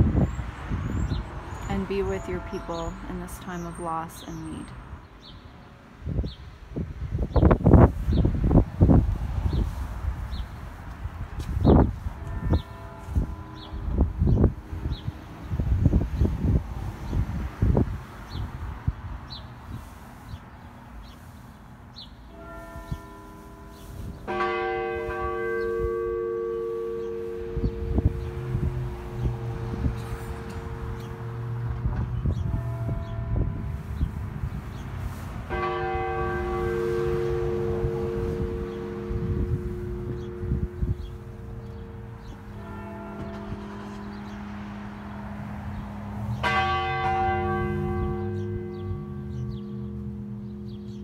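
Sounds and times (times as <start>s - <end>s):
church bell tolling: 12.0s - 15.6s, 22.3s - 34.0s, 35.5s - 51.0s.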